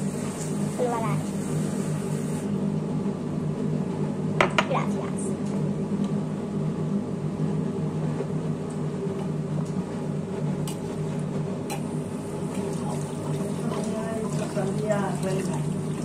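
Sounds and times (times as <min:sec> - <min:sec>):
appliance motor humming: 0:11.6 - 0:16.0.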